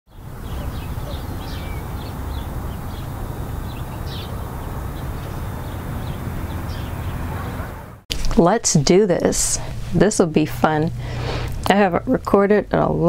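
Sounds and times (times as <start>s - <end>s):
small birds chirping: 0.1s - 8.0s
steady low rumble: 0.2s - 8.0s, 8.8s - 12.3s.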